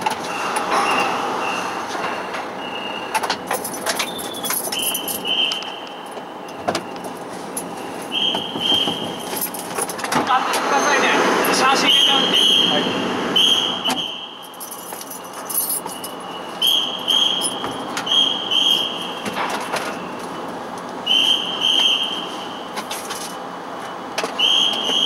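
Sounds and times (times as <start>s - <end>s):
vehicle engines rumbling with echo: 0.0s - 25.0s
whistle short double blasts: 13.4s - 14.5s, 16.6s - 19.1s, 21.1s - 22.3s, 24.4s - 25.0s.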